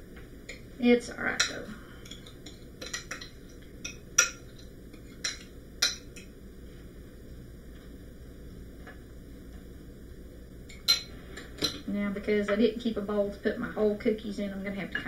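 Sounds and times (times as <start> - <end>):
metal fork clinking on ceramic: 1.4 - 6.3, 10.7 - 11.8.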